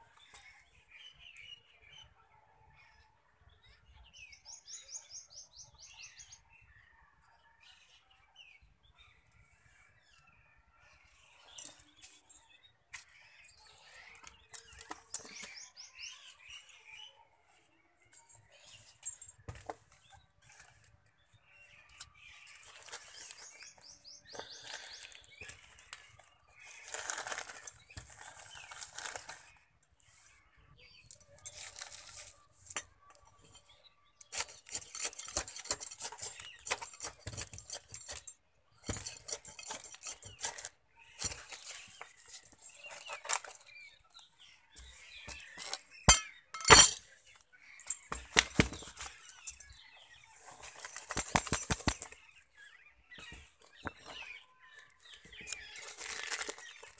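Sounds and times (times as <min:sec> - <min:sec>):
hands pressing potting soil: 0:22.6 - 0:29.5
plastic crinkling: 0:55.4 - 0:56.9.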